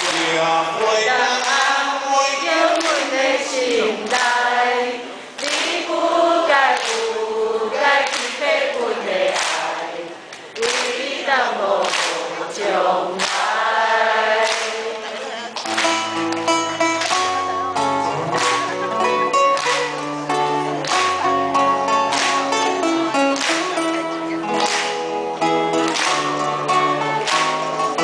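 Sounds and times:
man singing: 0:00.0 - 0:04.1
acoustic guitar: 0:14.7 - 0:28.0
band with bass and beat: 0:15.6 - 0:28.0.

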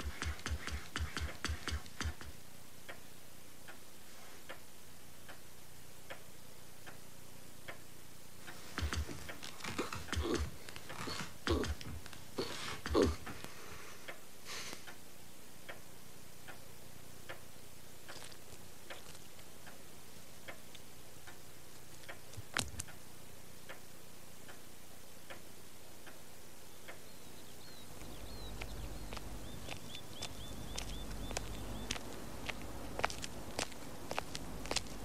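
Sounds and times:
clock ticking: 0:07.6 - 0:12.2, 0:15.6 - 0:16.6, 0:17.2 - 0:18.3
small high chirps: 0:26.8 - 0:32.2.

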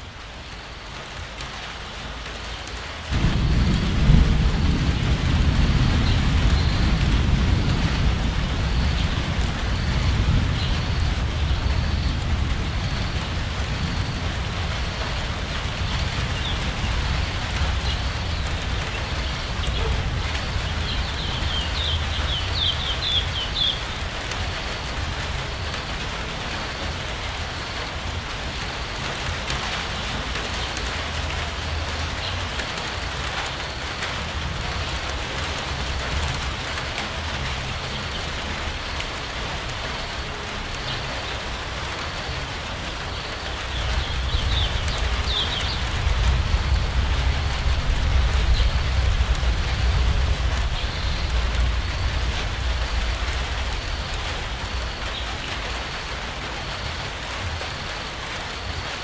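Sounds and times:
rain pattering: 0:00.0 - 0:59.0
low rumble: 0:43.8 - 0:55.2.

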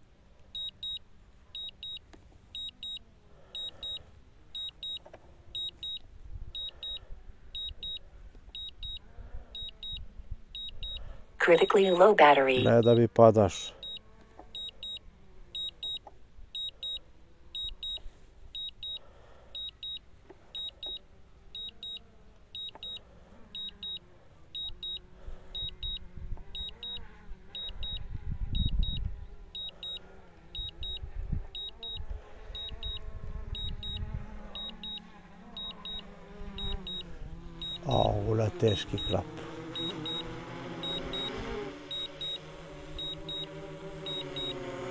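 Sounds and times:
high-pitched alarm beeps: 0:00.6 - 0:01.0, 0:02.6 - 0:03.0, 0:03.6 - 0:04.0, 0:04.6 - 0:05.0, 0:05.6 - 0:06.0, 0:06.6 - 0:07.0, 0:07.6 - 0:08.0, 0:08.6 - 0:09.0, 0:09.6 - 0:10.0, 0:10.6 - 0:13.0, 0:13.8 - 0:14.0, 0:14.6 - 0:15.0, 0:15.6 - 0:16.0, 0:16.6 - 0:17.0, 0:17.6 - 0:18.0, 0:18.6 - 0:19.0, 0:19.6 - 0:20.0, 0:20.6 - 0:21.0, 0:22.6 - 0:23.0, 0:23.6 - 0:24.0, 0:24.6 - 0:25.0, 0:25.6 - 0:26.0, 0:26.6 - 0:27.0, 0:27.6 - 0:28.0, 0:28.6 - 0:29.0, 0:29.6 - 0:30.0, 0:30.6 - 0:31.0, 0:31.6 - 0:32.0, 0:32.6 - 0:34.0, 0:34.6 - 0:35.0, 0:35.6 - 0:39.2, 0:39.8 - 0:42.4, 0:43.0 - 0:44.6.

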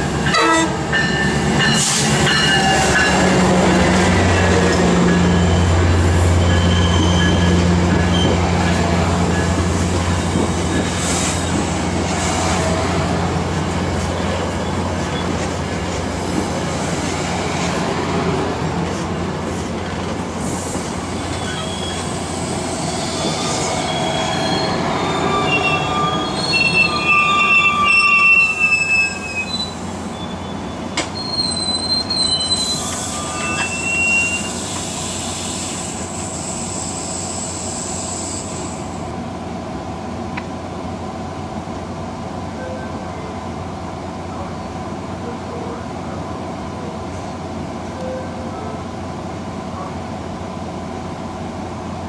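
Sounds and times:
train wheels rumbling on rails: 0:00.0 - 0:52.0
high-pitched metal squeals: 0:21.2 - 0:34.7.

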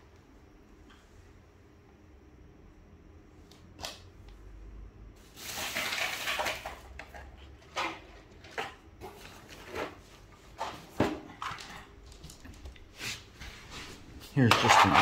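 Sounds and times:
objects rummaged through: 0:05.2 - 0:12.6.

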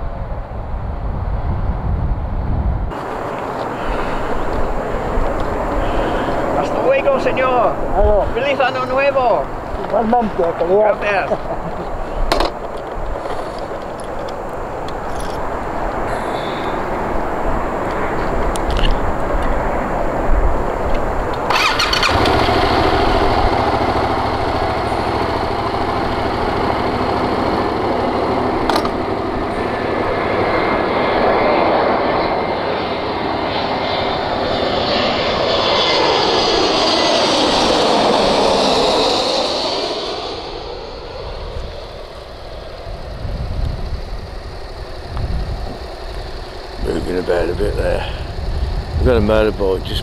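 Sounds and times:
jet airliner flying overhead: 0:00.0 - 0:50.0.

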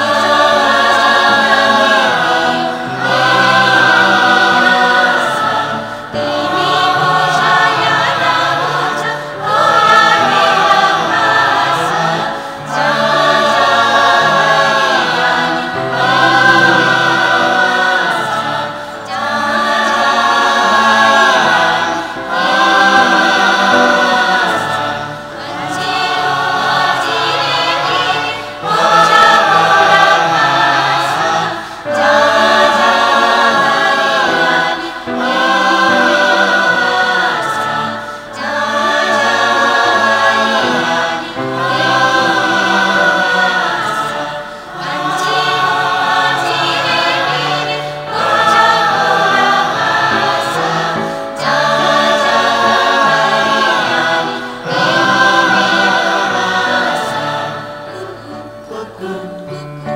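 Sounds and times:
choir singing: 0:00.0 - 0:59.9
singers breathing: 0:31.5 - 0:31.9.

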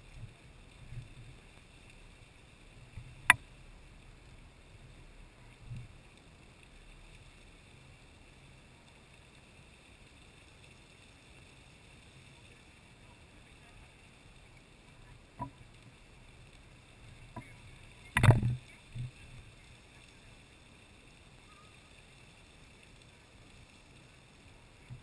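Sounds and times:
geyser water and steam hissing: 0:00.0 - 0:25.0
sharp click: 0:18.2 - 0:18.6.

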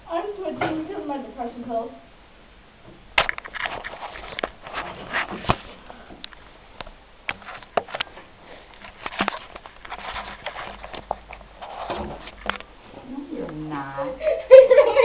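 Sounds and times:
camera handling rustles: 0:03.2 - 0:06.4, 0:07.3 - 0:12.7.

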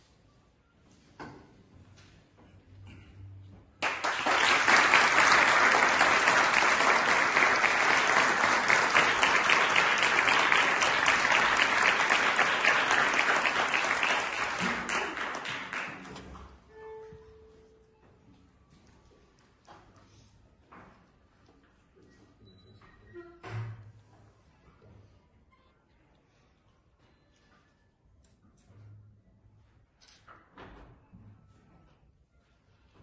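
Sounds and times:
audience applauding: 0:03.8 - 0:16.2.

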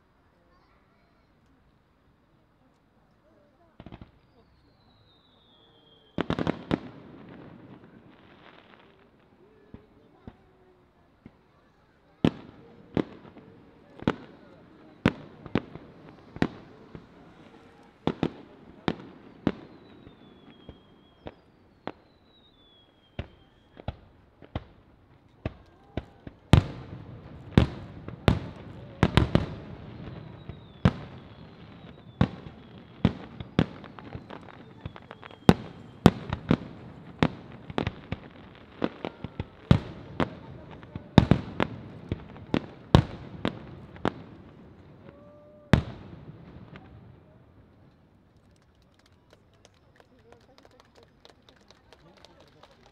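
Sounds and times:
firework whistles gliding down: 0:04.0 - 0:08.2, 0:14.7 - 0:23.9, 0:27.6 - 0:39.7.

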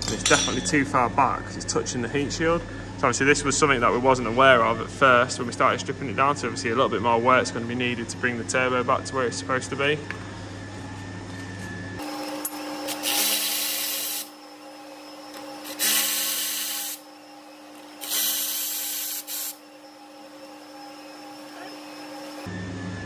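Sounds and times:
electric ratchet running: 0:12.0 - 0:22.5.

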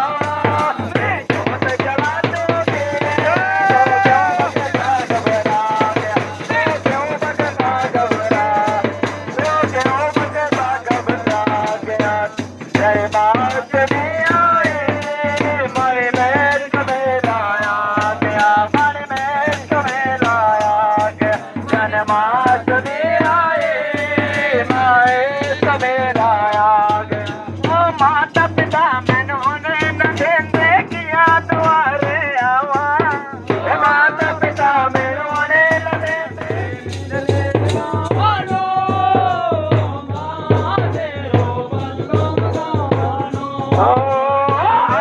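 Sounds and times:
rattle and drum rhythm: 0:00.0 - 0:45.0.

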